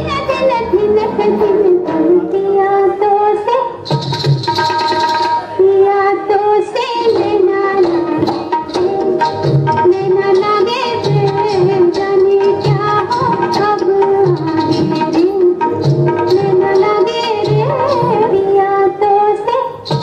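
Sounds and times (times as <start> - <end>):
woman singing: 0.0 - 3.9, 4.6 - 20.0
tabla: 0.0 - 20.0
drum strokes: 3.8 - 5.5, 7.0 - 18.4.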